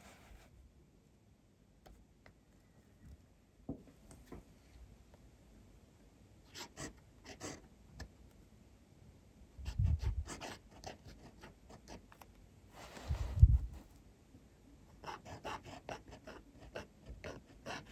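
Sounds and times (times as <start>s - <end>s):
pen nib scratching paper: 9.7s - 12.0s, 15.0s - 17.9s.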